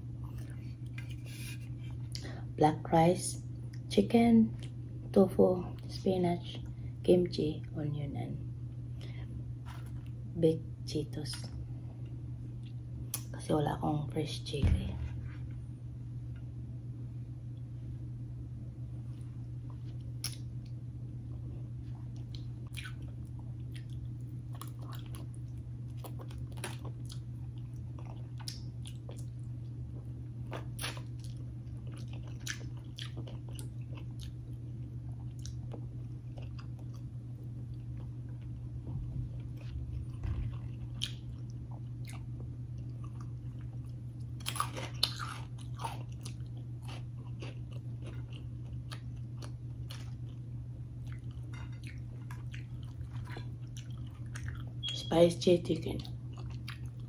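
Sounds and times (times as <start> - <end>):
steady low hum: 0.0 - 57.0
person chewing and crunching food: 19.1 - 54.9, 56.0 - 57.0.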